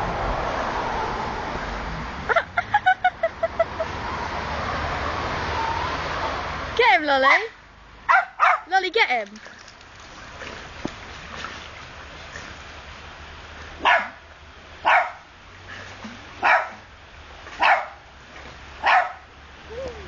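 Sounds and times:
dog barking: 0:08.1 - 0:08.7, 0:13.8 - 0:14.2, 0:14.8 - 0:15.2, 0:16.4 - 0:16.8, 0:17.6 - 0:18.0, 0:18.8 - 0:19.2.

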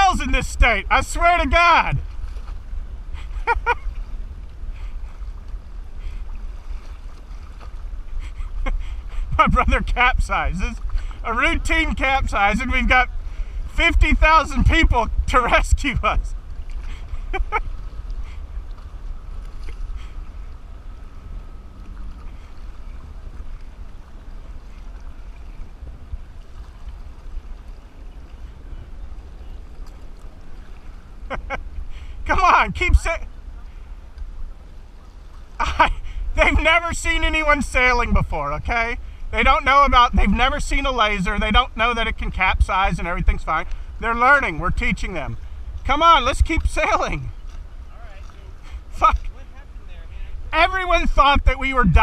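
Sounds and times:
kayak paddle strokes in water: 0:00.0 - 0:38.2
wind buffeting microphone: 0:00.0 - 0:52.0.

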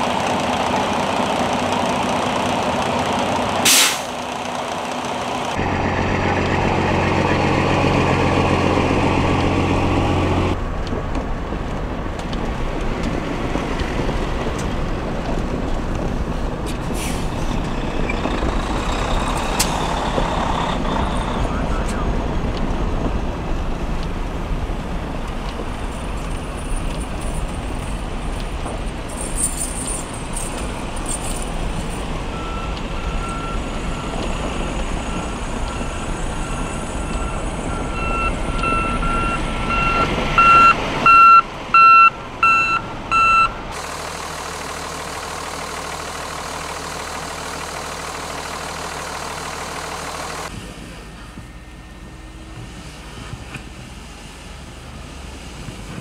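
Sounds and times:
heavy truck rumbling: 0:00.0 - 0:56.0
backup alarm beeping: 0:32.3 - 0:43.7.

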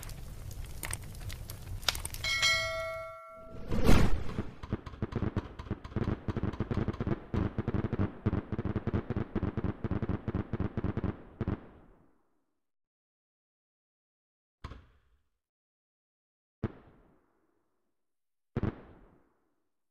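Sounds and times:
fireworks popping and crackling: 0:00.0 - 0:02.3, 0:04.3 - 0:11.8.

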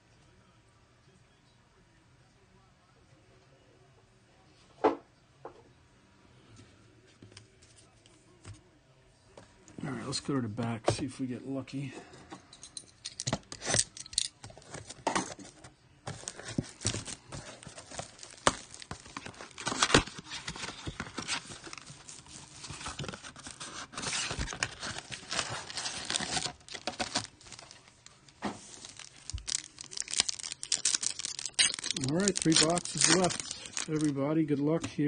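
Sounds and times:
wrapped packs crinkling: 0:16.1 - 0:34.2
cardboard box tearing: 0:16.2 - 0:27.7, 0:28.8 - 0:34.1.

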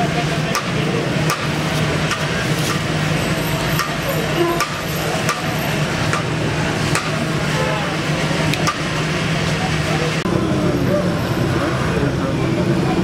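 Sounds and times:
street noise: 0:00.0 - 0:13.0
sharp clicks and knocks: 0:00.5 - 0:02.9, 0:03.8 - 0:04.0, 0:04.6 - 0:07.2, 0:08.5 - 0:08.9.

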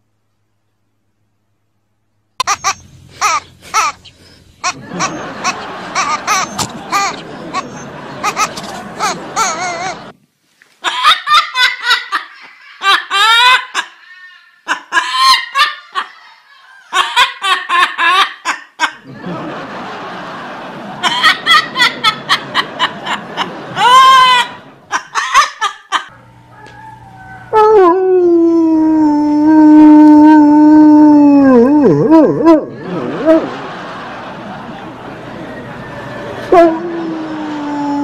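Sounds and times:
parrot squawk: 0:02.4 - 0:10.0, 0:13.1 - 0:15.7
parrot imitating laughter: 0:02.4 - 0:10.1, 0:10.8 - 0:26.3, 0:30.1 - 0:38.0
dog howling: 0:26.1 - 0:33.6, 0:35.6 - 0:38.0.

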